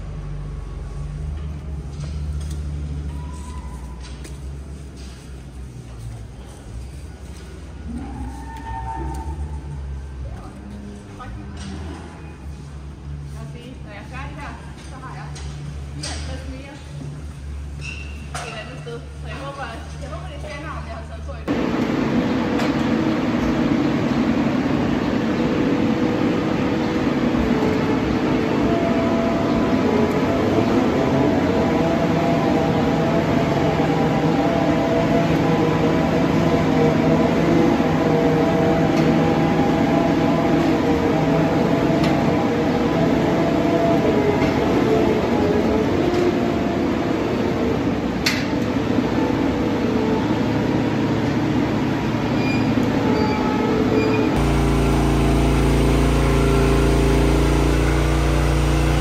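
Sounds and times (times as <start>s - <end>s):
feed mixer wagon droning: 53.6s - 59.0s.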